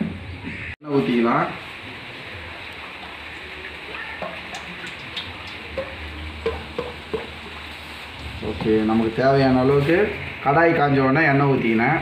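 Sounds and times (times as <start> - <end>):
oil pouring into metal pan: 2.1 - 10.2.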